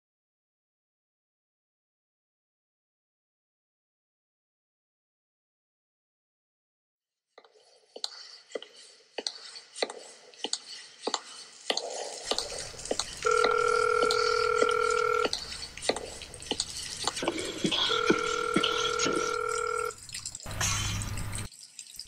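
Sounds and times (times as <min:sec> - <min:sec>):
water dripping: 0:10.5 - 0:22.0
telephone ringing tone: 0:13.2 - 0:15.3, 0:17.2 - 0:20.0.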